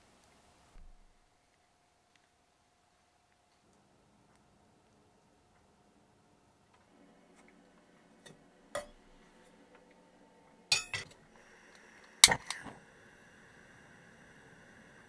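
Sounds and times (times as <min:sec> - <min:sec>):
gas flame hissing: 0:00.0 - 0:01.2, 0:08.0 - 0:15.0
metal saucepan clinking: 0:08.8 - 0:09.1, 0:10.7 - 0:11.1
gas burner ignition clicks: 0:11.7 - 0:12.8.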